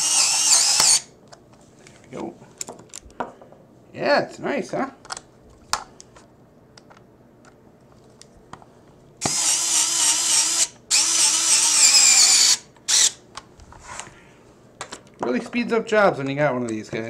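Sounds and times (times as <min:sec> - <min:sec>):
electric screwdriver motor whining: 0:00.0 - 0:01.1, 0:09.2 - 0:13.2.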